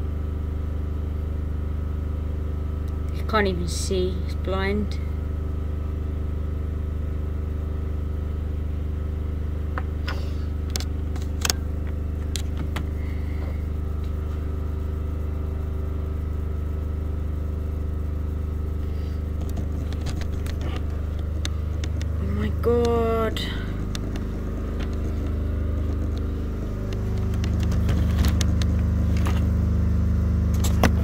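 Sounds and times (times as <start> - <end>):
machine-like hum: 0.0 - 31.0
sharp clicks and taps: 19.4 - 23.0, 23.8 - 29.4.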